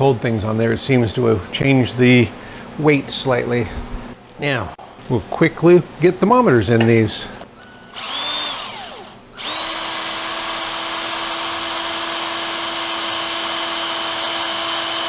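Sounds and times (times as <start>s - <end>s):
cordless drill boring: 7.6s - 15.0s.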